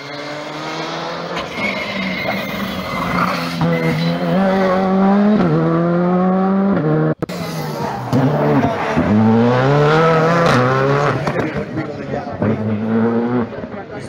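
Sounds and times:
rally car engine revving: 0.0s - 14.0s
tyre squeal: 1.4s - 5.0s.

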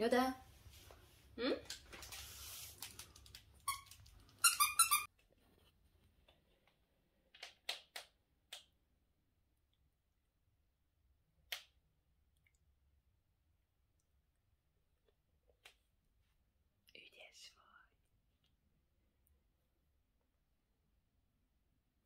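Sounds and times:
dog toy squeaking: 3.7s - 5.1s.

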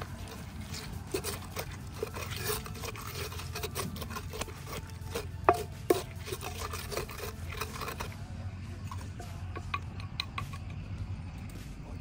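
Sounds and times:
pestle grinding in a mortar: 0.0s - 11.3s
pestle knocks: 5.4s - 6.2s.

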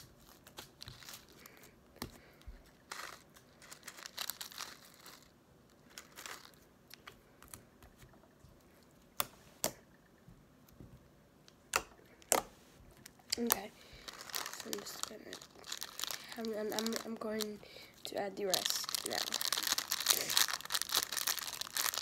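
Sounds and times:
plastic wrapper crinkling: 0.1s - 7.6s, 13.0s - 22.0s.

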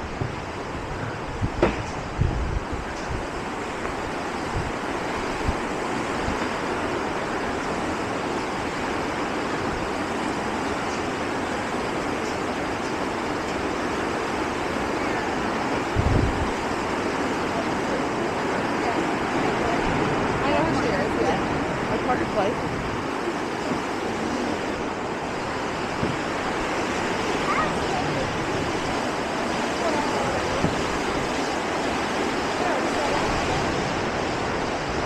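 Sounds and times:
wind bumps on microphone: 0.0s - 6.7s, 15.8s - 17.2s, 19.1s - 35.0s
fast-flowing creek water: 0.0s - 35.0s.

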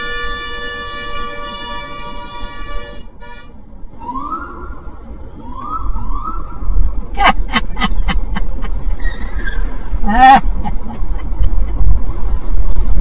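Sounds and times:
car horn: 0.0s - 3.6s
road rumble: 0.0s - 13.0s
police siren chirps: 4.0s - 6.6s.

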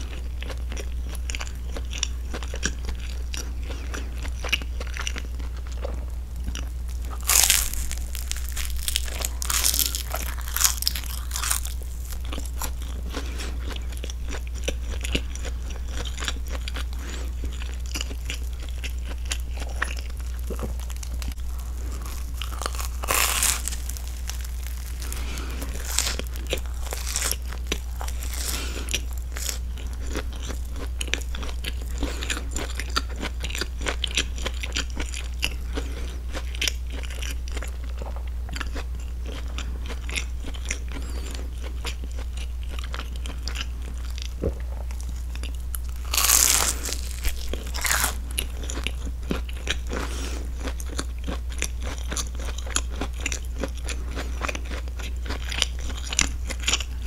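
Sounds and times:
steady low hum: 0.0s - 57.0s
wet chewing: 0.1s - 57.0s
crunchy bites into toast: 7.0s - 37.6s, 45.8s - 57.0s
nose breathing: 24.9s - 27.0s, 28.1s - 29.1s.

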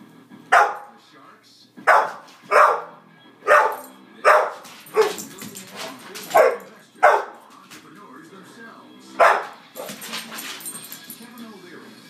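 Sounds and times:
dog barking: 0.5s - 1.0s, 1.8s - 5.3s, 6.2s - 7.4s, 9.2s - 10.0s.

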